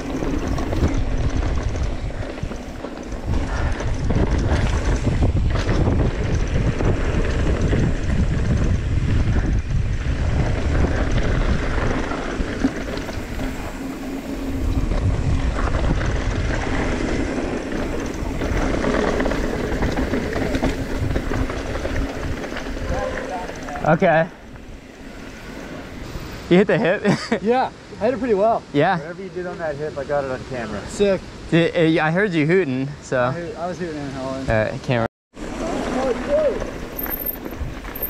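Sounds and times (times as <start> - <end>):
bike rattling over bumps: 0.0 - 26.3
wind buffeting microphone: 0.0 - 26.5
bike tyres rolling on gravel: 0.0 - 26.6, 35.4 - 38.0.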